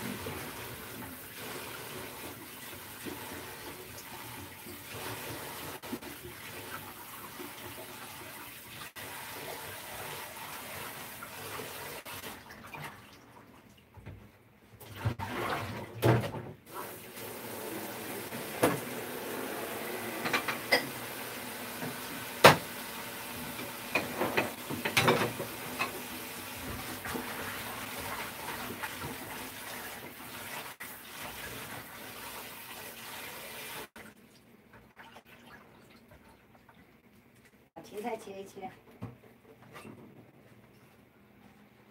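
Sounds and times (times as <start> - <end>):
tap water running into sink: 0.0 - 13.2, 15.0 - 37.5
knocks and clatters in sink: 14.0 - 16.7, 18.3 - 19.0, 20.2 - 21.1, 21.7 - 29.5.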